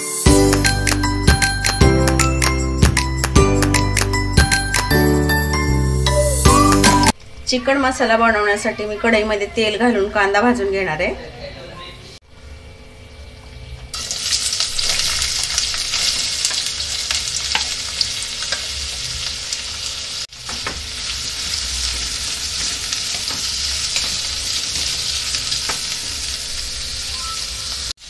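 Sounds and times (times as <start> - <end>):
onions sizzling in oil: 14.0 - 28.0.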